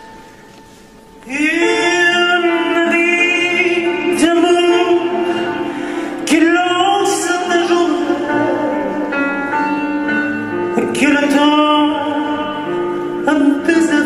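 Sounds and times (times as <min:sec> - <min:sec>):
man singing long notes: 0:01.3 - 0:09.3.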